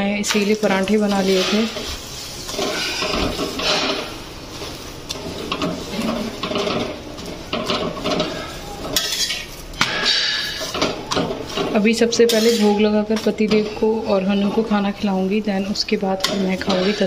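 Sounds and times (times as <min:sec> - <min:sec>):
metal spatula scraping griddle: 0:00.4 - 0:13.3.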